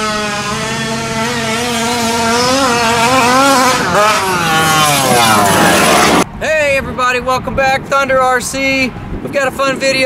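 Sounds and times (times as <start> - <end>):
model truck engine revving: 0.0 - 6.2.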